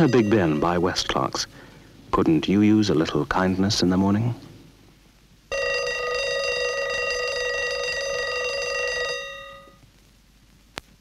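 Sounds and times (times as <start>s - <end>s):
alarm clock bell ringing: 0.0s - 1.3s, 5.5s - 9.8s.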